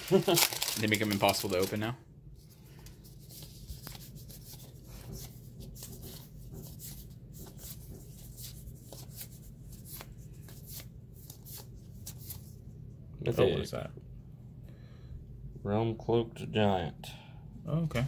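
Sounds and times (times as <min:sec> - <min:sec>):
hands rustling foil card pack: 0:00.0 - 0:06.2
steady low hum: 0:01.7 - 0:18.0.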